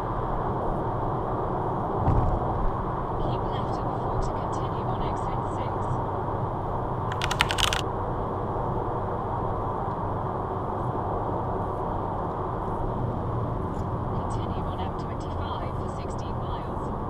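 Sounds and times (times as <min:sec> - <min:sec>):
road and tyre noise in car: 0:00.0 - 0:17.0
sharp clicks: 0:07.1 - 0:07.8.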